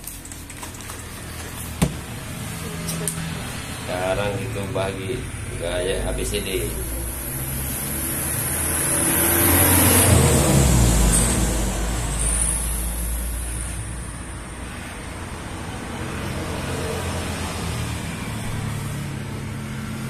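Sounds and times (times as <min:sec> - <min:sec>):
vehicle passing by: 0:01.6 - 0:20.0.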